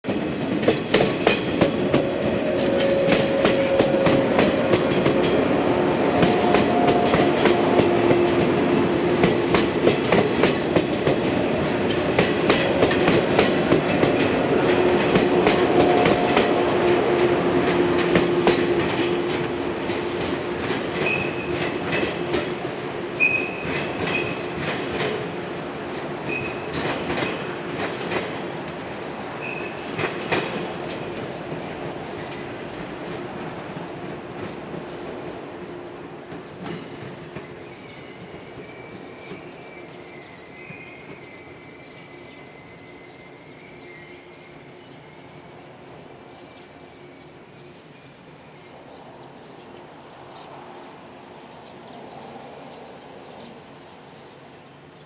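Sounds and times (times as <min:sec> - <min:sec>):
train wheels clicking over rail joints: 0:00.1 - 0:25.4, 0:26.2 - 0:28.8
high wheel squeals: 0:02.1 - 0:05.6.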